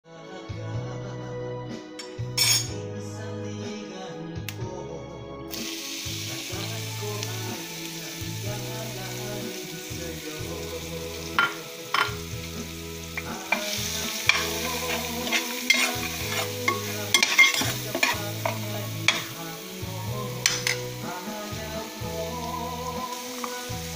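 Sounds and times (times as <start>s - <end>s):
vegetables sizzling in oil: 5.5s - 23.9s
utensil scraping metal pan: 13.2s - 19.3s.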